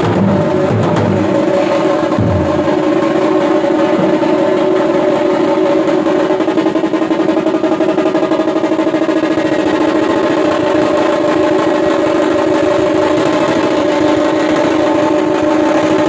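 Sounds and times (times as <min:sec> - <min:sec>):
drum band playing rolls: 0:00.0 - 0:16.0.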